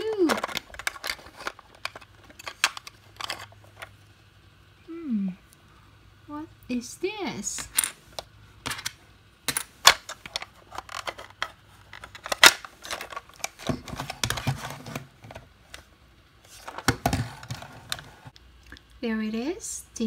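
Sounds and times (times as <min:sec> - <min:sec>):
plastic toy parts clicking and knocking: 0:00.0 - 0:03.9, 0:07.6 - 0:15.8.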